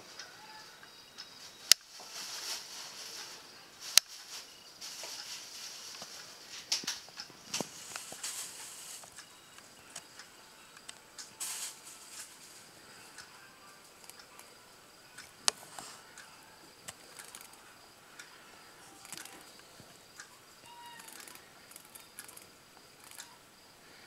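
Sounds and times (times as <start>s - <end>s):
soft rustling and handling: 1.4s - 9.3s, 11.4s - 13.0s, 15.5s - 16.2s
sharp clicks: 16.2s - 17.6s, 18.2s - 23.4s.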